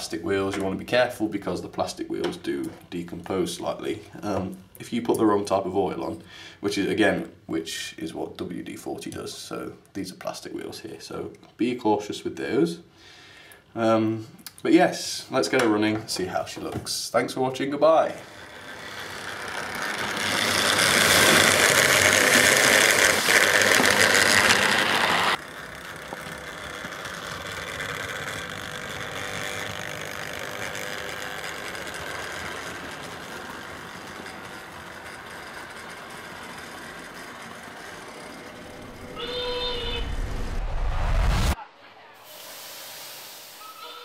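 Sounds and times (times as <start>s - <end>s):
model train motor and wheels running: 16.1s - 40.4s, 42.3s - 44.0s
brief pitched tone: 43.5s - 44.0s.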